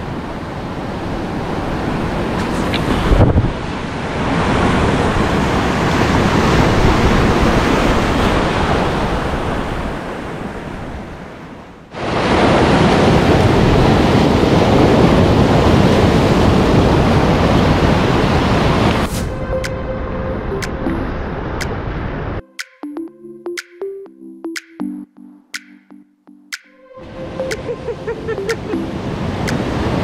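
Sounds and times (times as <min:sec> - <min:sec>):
wind buffeting microphone: 0:01.4 - 0:10.2
waves breaking on rocky shore: 0:11.9 - 0:19.1.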